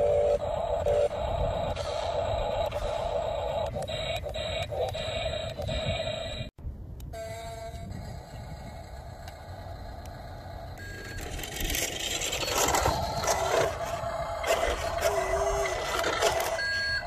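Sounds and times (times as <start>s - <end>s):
toy truck electric hum: 0.0s - 6.5s, 7.1s - 17.0s
wheels over gravel: 9.0s - 17.0s.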